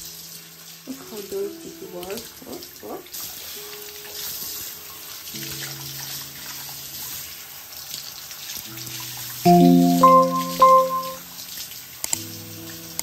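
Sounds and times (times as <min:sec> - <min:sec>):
music: 0:09.5 - 0:11.5, 0:12.1 - 0:13.0.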